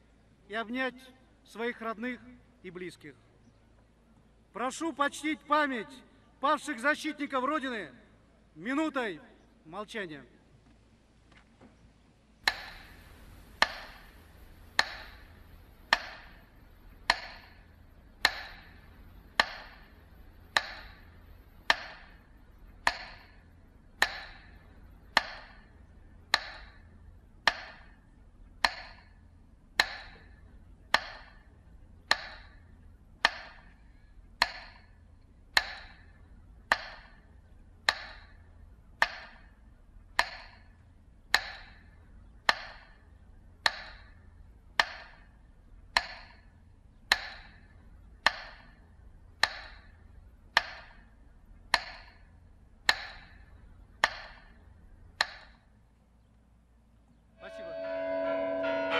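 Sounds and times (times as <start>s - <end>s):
metronome ticks: 12.4s - 45.3s, 45.9s - 55.7s.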